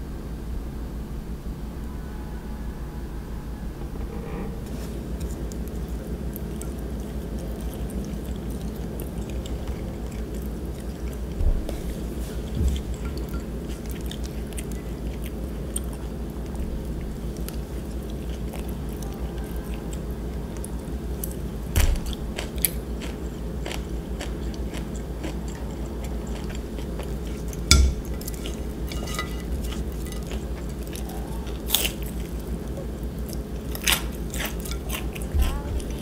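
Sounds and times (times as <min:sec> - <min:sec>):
steady low hum: 0:00.0 - 0:36.0
chewing and biting food: 0:04.8 - 0:36.0
chopsticks tapping a plate: 0:27.7 - 0:31.0.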